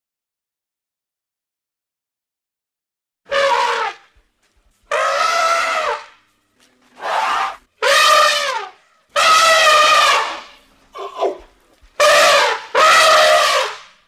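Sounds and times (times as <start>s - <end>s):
elephant trumpeting: 3.3s - 4.1s, 4.9s - 6.2s, 7.0s - 14.0s.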